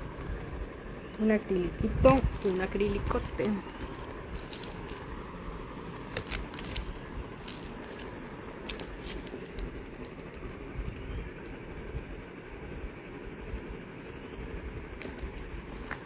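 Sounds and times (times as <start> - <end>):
low steady rumble: 0.0 - 16.0
plastic sleeve crinkling: 2.1 - 5.1, 5.9 - 11.0.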